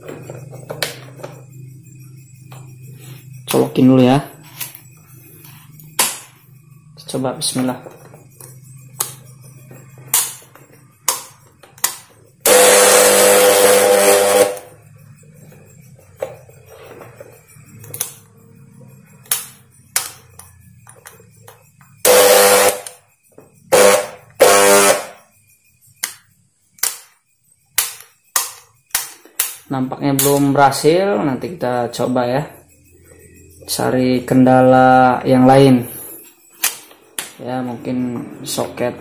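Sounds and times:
blender motor bursts: 12.4s - 14.7s, 22.0s - 22.9s, 23.7s - 25.1s.

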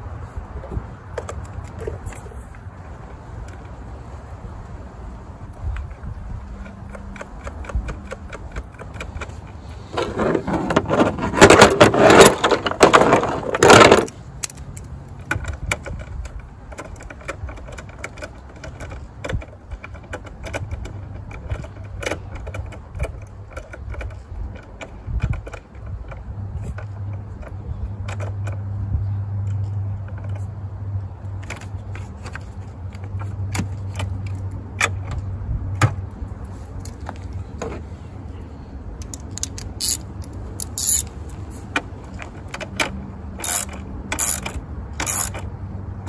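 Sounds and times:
metal tools clinking and rattling: 10.0s - 15.0s, 39.2s - 42.5s.

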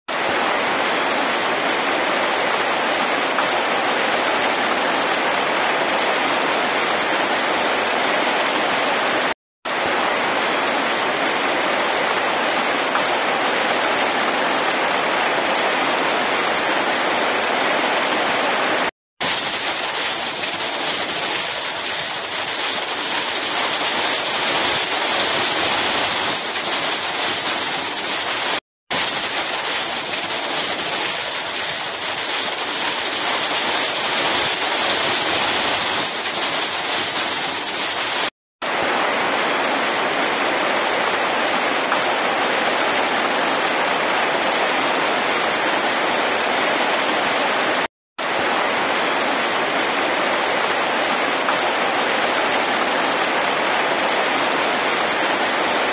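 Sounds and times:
heavy rain on pavement: 0.1s - 55.9s.

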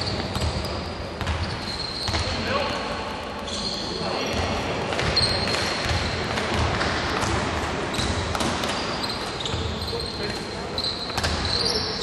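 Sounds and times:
sneakers squeaking: 0.0s - 12.0s
basketball bouncing on wooden floor: 4.3s - 8.8s.

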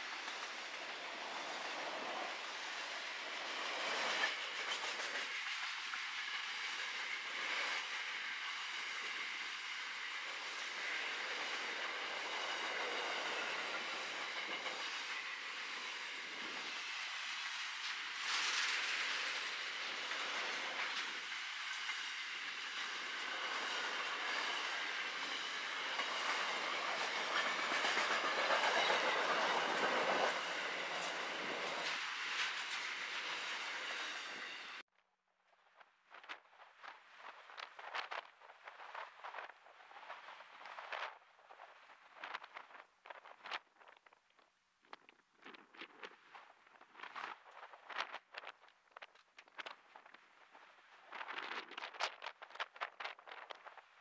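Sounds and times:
train wheels on rail: 0.0s - 34.8s.

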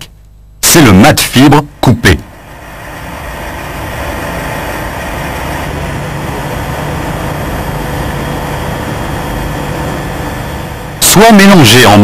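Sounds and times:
noisy hiss: 0.0s - 12.0s
low drone: 1.6s - 11.7s.

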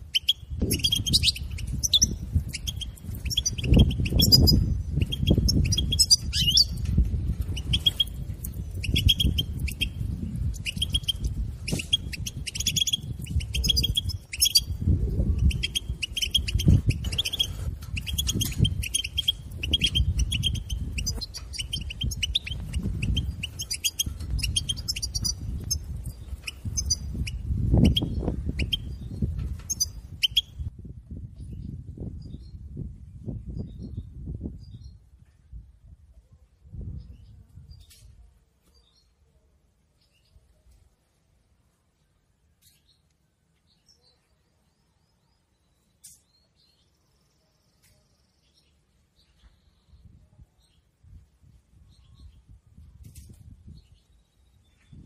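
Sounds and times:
goldfinch twittering calls: 0.1s - 6.9s, 7.5s - 14.8s, 15.4s - 30.6s.

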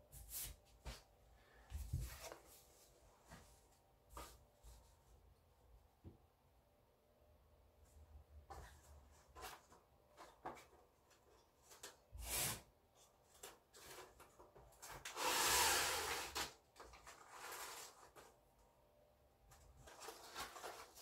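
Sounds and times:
rasping rustle of tape: 13.3s - 18.4s.

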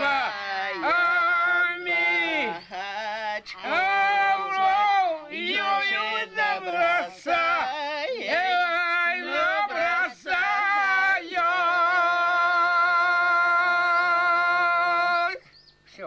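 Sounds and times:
man and woman singing unaccompanied: 0.0s - 16.0s.

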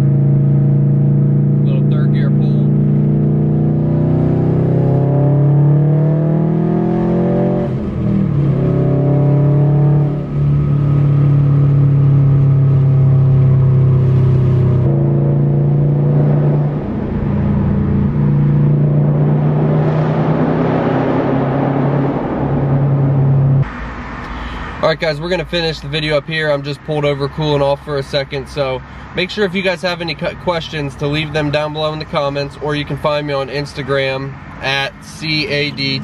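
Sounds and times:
loud car engine revving: 0.0s - 23.7s.

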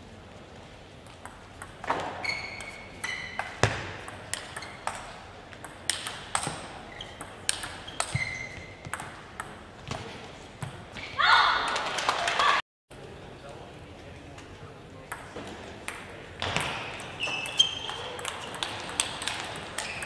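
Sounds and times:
shoes squeaking on floor: 1.9s - 3.8s, 6.6s - 8.9s, 16.7s - 18.6s, 19.8s - 20.0s.

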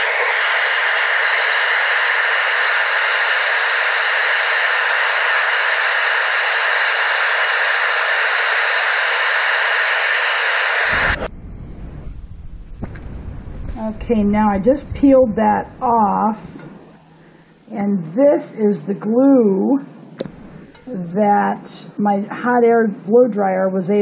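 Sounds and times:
blow dryer blowing: 0.0s - 11.3s.

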